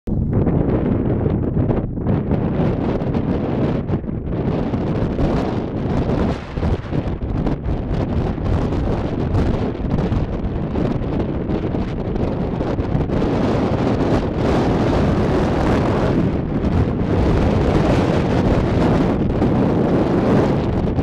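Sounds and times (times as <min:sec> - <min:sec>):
wind buffeting microphone: 0:00.1 - 0:21.0.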